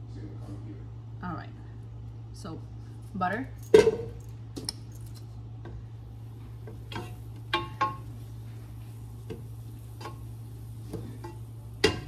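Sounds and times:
steady low hum: 0.0 - 12.0
wooden spoon stirring in pot: 5.6 - 12.0
spoon knocking against pot: 10.9 - 12.0.

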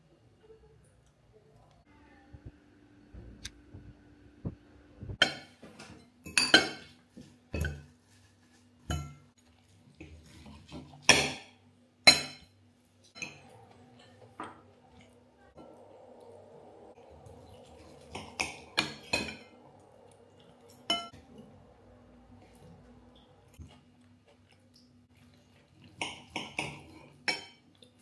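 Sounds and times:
fork clinking on ceramic bowls: 5.2 - 6.9, 8.9 - 9.2, 11.0 - 14.2, 20.6 - 21.2, 26.0 - 27.6.

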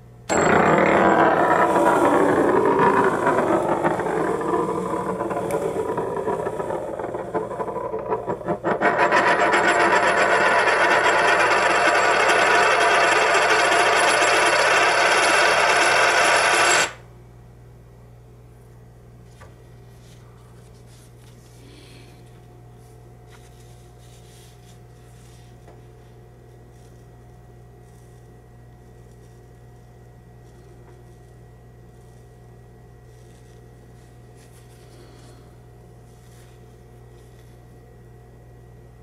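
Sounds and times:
coin spinning on hard surface: 0.3 - 17.0.

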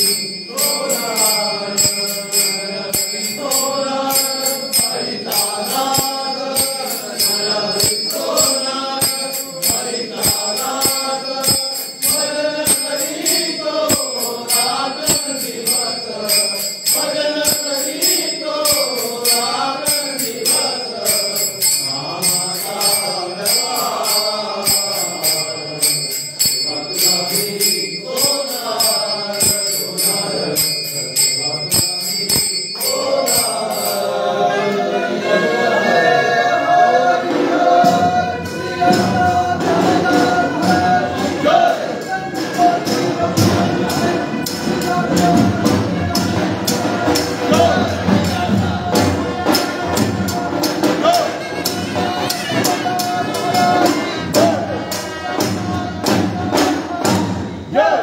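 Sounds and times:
hand cymbals struck: 0.0 - 35.0, 37.2 - 57.8
men singing in chorus: 0.0 - 58.0.

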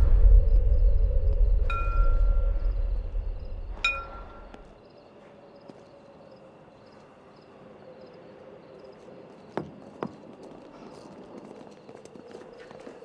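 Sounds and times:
low steady hum: 0.0 - 4.8.

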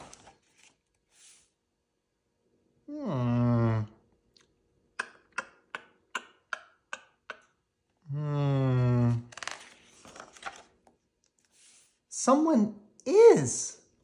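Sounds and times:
man humming: 2.9 - 4.0, 8.0 - 9.3.

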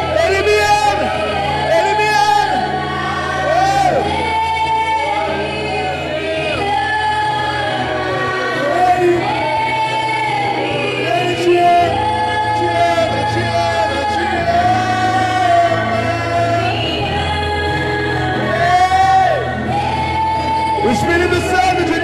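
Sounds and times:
voices singing slow worship song: 0.0 - 22.0.

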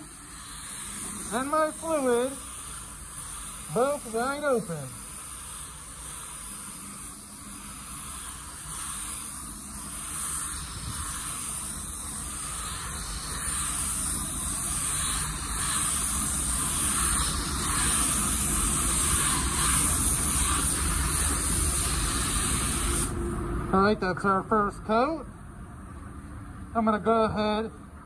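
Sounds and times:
spray gun hissing: 0.0 - 23.2.

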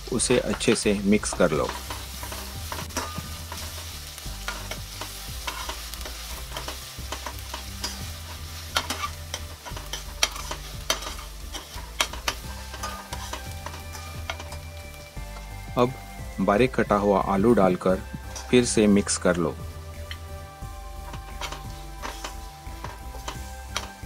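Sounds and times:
onions sizzling in hot oil: 0.0 - 24.0
steel spoon scraping pan: 0.2 - 15.5, 21.0 - 24.0.

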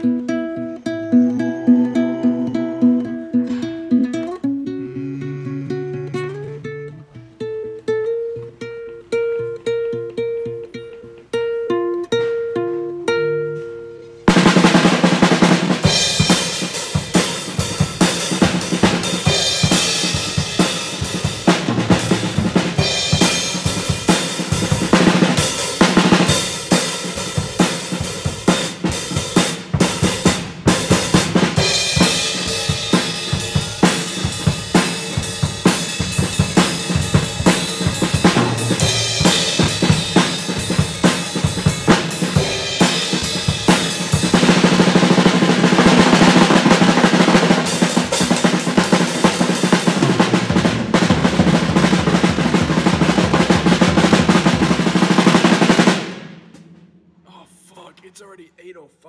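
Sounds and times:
instrumental band music: 0.0 - 56.9
bass drum and snare hits: 14.3 - 26.3.

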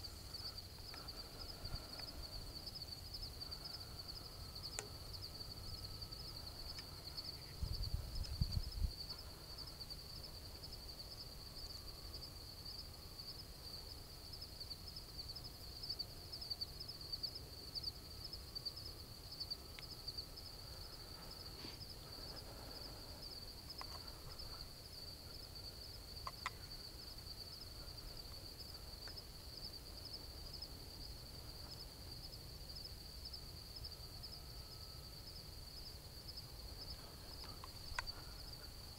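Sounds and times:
insects trilling: 0.0 - 38.9
faint ticks: 0.3 - 2.3, 3.4 - 10.0, 19.4 - 20.2, 21.2 - 29.4, 36.8 - 38.9.

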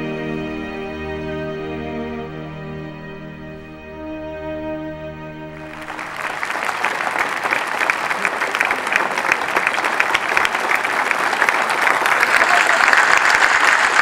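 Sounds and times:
music chord: 0.0 - 6.4
audience applauding: 5.6 - 14.0.

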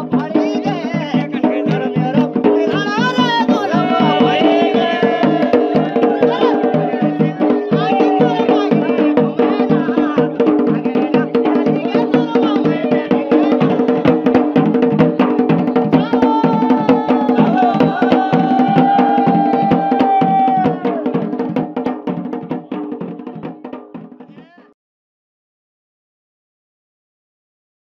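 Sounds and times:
drum played fast: 0.0 - 24.8
band music: 3.4 - 8.6.

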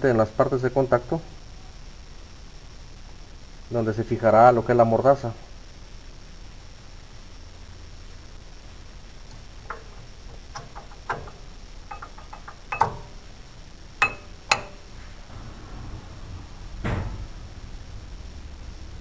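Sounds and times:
metallic clicks and clacks: 9.7 - 13.2.

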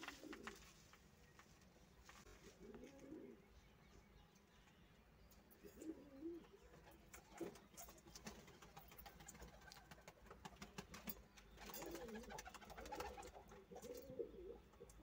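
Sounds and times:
pigeon cooing: 2.6 - 3.4, 5.6 - 6.6, 11.7 - 15.0.

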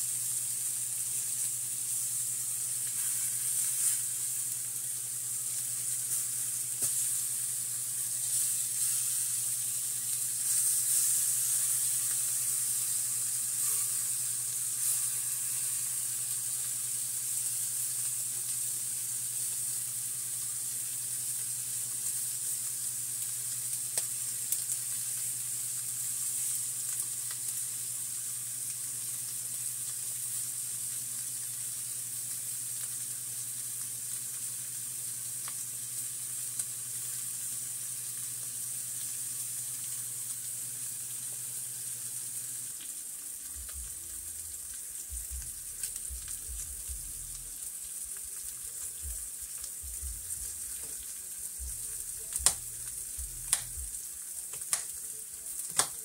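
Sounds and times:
meat sizzling on griddle: 0.0 - 56.0
low hum: 43.6 - 47.6, 51.6 - 54.1.

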